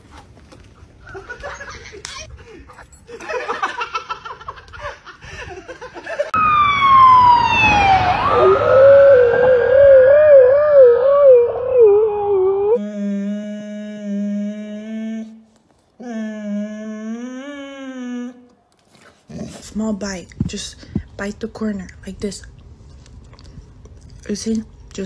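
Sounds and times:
emergency vehicle siren: 6.4s - 12.8s
husky howling: 7.8s - 12.8s.

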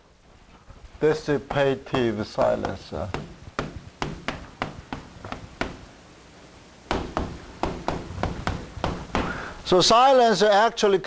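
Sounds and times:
chalk tapping on blackboard: 1.5s - 5.8s.

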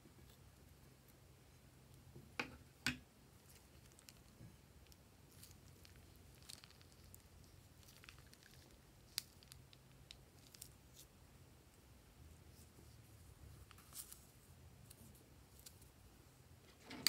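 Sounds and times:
low steady hum: 0.0s - 17.0s
slime squelching from piping bag: 3.4s - 11.0s.

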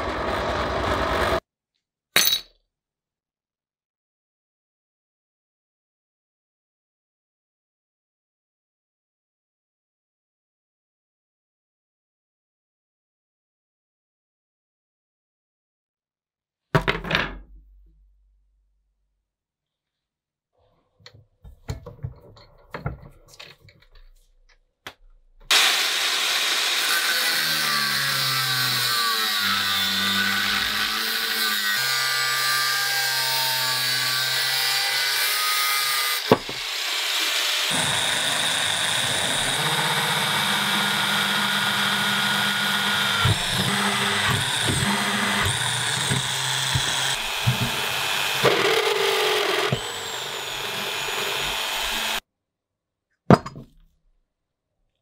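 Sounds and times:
angle grinder cutting steel: 0.0s - 1.4s, 25.5s - 52.2s
drill press boring steel: 0.0s - 1.4s, 25.5s - 35.3s, 35.9s - 52.2s.

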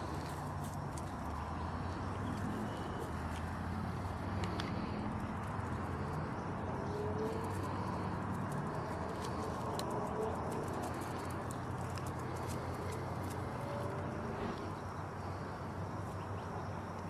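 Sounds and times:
steady low hum: 0.0s - 17.0s
dog claws ticking on concrete: 7.2s - 13.6s.

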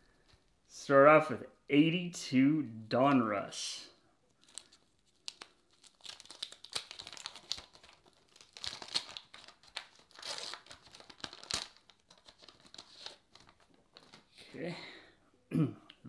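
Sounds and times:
wax paper wrapper tearing: 4.4s - 14.3s.

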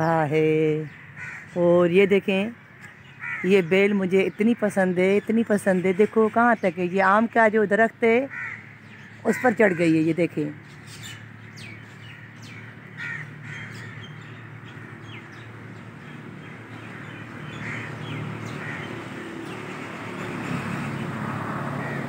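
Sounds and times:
crows cawing: 0.9s - 1.6s, 2.6s - 3.7s, 8.3s - 10.1s, 12.0s - 15.2s, 16.0s - 19.0s, 21.7s - 22.0s.

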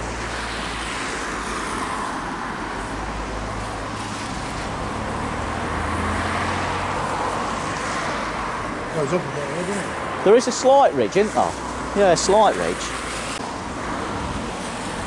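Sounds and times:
hum of cars: 0.0s - 15.0s
vehicle passing by: 3.0s - 15.0s.

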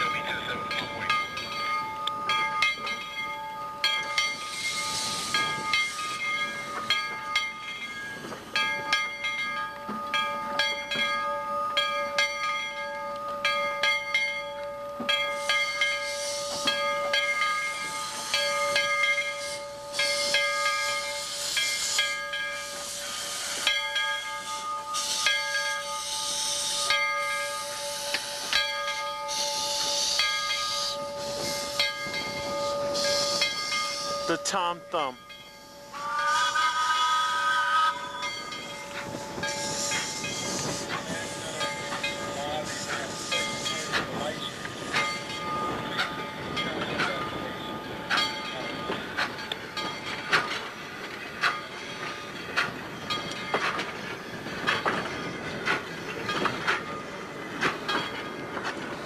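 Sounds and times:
steam hissing in surges: 4.0s - 7.0s, 15.3s - 34.6s, 35.6s - 59.0s
wheels clicking and clanking: 38.2s - 59.0s.

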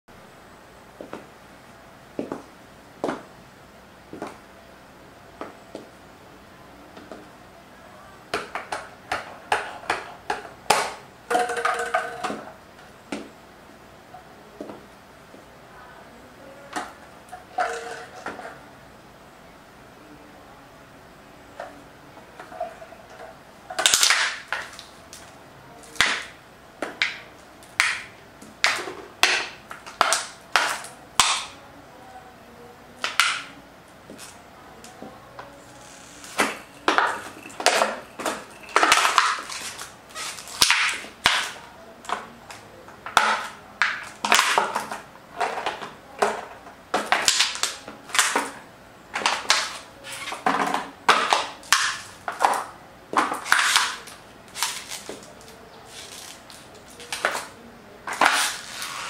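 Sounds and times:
heels clacking on tiled floor: 2.2s - 3.3s, 4.1s - 4.4s.

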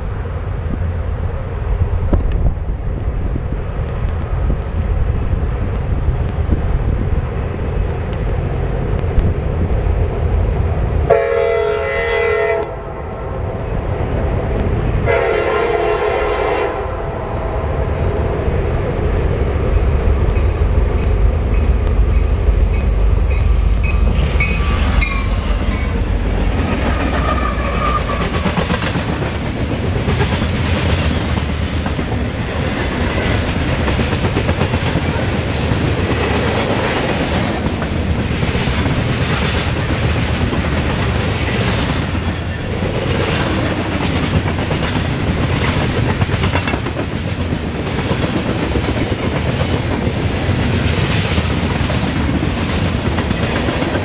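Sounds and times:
locomotive air horn blasts: 11.1s - 12.9s, 15.1s - 17.7s
train wheels clacking on rail joints: 19.1s - 54.0s
high wheel squealing: 27.0s - 28.5s.

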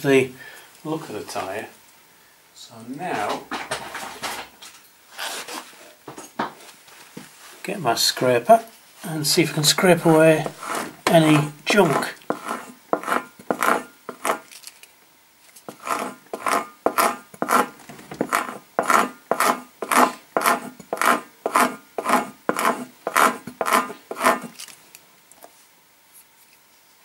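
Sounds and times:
metal scraper rasping on rubber: 10.4s - 14.5s, 15.7s - 24.7s.

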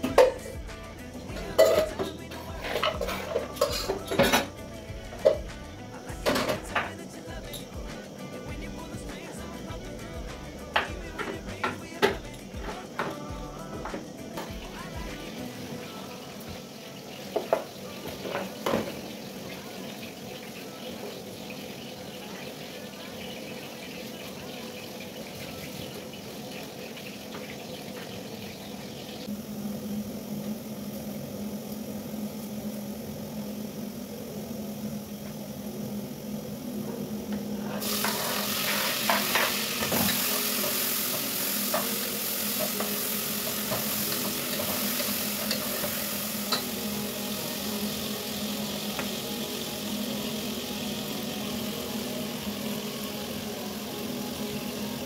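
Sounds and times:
tomatoes sizzling in a pot: 0.0s - 55.0s.

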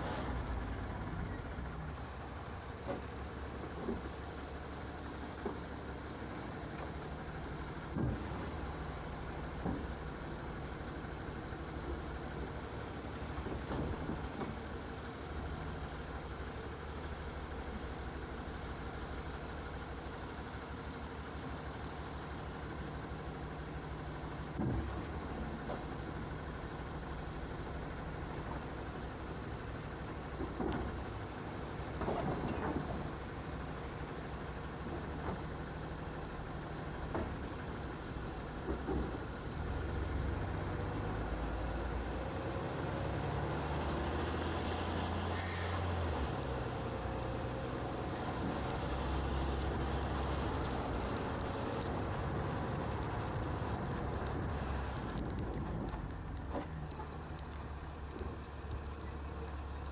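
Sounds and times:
garbage truck engine running: 0.0s - 59.9s
hydraulic arm dumping cart: 24.2s - 59.9s.

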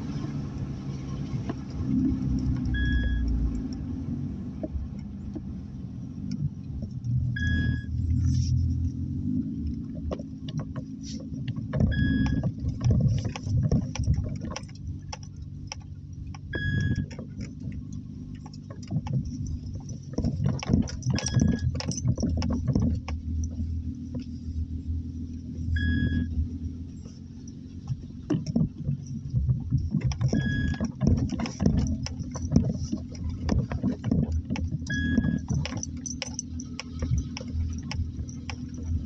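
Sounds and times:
car tyre and engine rumble: 0.0s - 39.0s
gravel crackling under tyres: 0.0s - 39.0s
short high beep: 2.8s - 3.3s, 25.8s - 26.3s.

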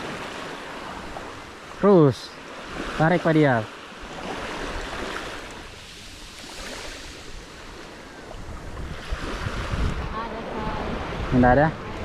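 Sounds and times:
small waves washing on sand: 0.0s - 12.0s
wind rumbling on microphone: 4.1s - 12.0s.

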